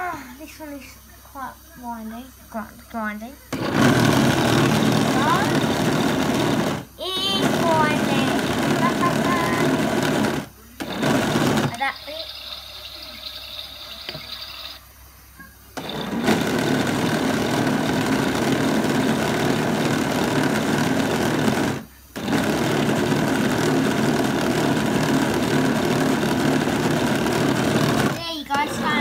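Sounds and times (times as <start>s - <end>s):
toy washing machine whirring: 3.6s - 14.8s, 15.8s - 29.0s.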